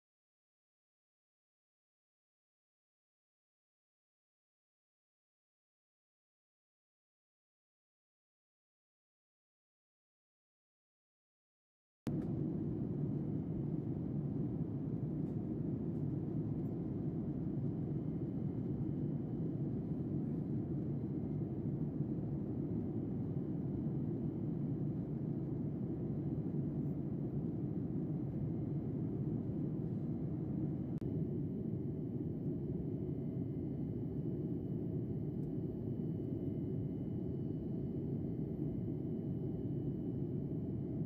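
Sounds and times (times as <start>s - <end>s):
airliner cabin engine rumble: 12.1s - 41.0s.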